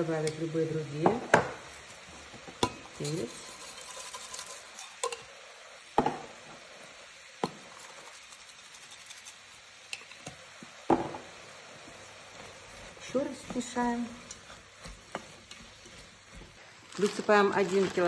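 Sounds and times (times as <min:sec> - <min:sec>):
food frying hiss: 0:00.0 - 0:18.0.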